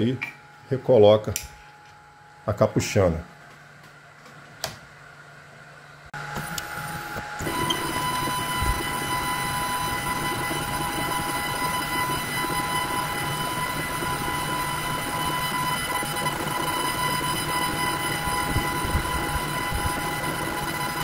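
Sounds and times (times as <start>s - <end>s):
stepper motor whine: 6.2s - 21.0s.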